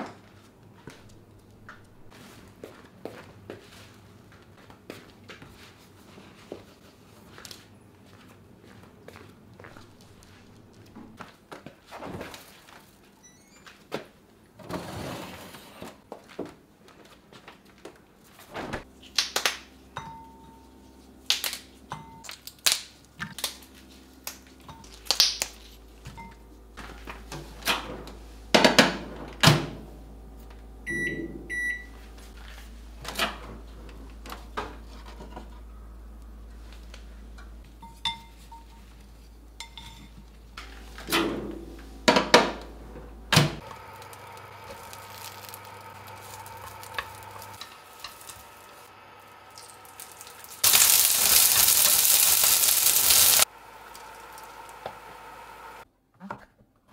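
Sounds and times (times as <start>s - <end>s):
steady low hum: 18.8s - 55.8s
microwave keypad beeps: 30.9s - 32.0s.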